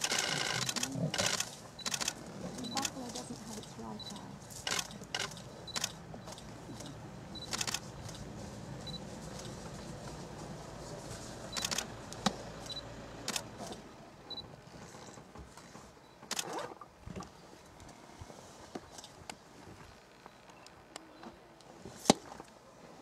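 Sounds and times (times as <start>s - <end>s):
camera shutter clicks: 0.0s - 3.0s, 4.1s - 6.0s, 7.4s - 7.8s, 11.5s - 11.9s, 12.7s - 13.5s.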